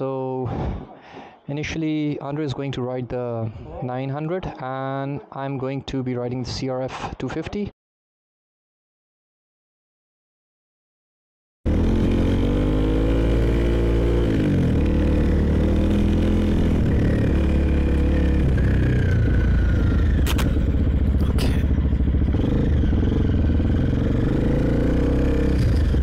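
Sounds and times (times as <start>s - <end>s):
motorcycle engine pulling away: 11.7s - 26.0s
sharp clacks: 20.2s - 20.6s.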